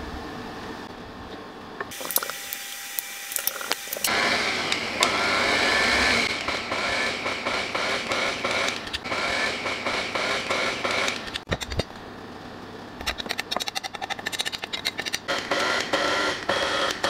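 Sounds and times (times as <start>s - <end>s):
stand mixer running: 1.9s - 11.3s, 15.3s - 17.0s.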